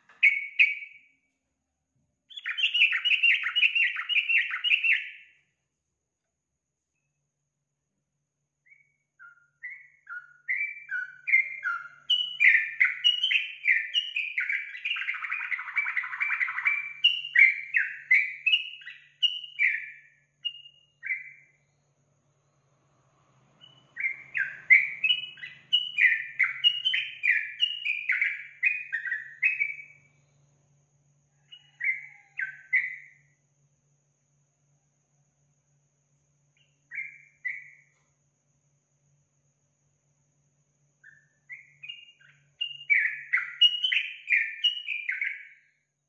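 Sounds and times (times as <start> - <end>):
bird singing chirping notes: 0.0 - 1.0, 2.3 - 5.3, 8.7 - 21.6, 23.6 - 30.0, 41.0 - 45.6.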